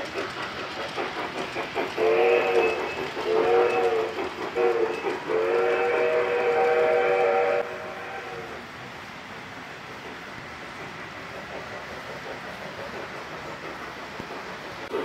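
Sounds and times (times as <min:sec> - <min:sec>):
model trains rumbling: 0:00.0 - 0:15.0
model train chime whistle: 0:02.0 - 0:08.4.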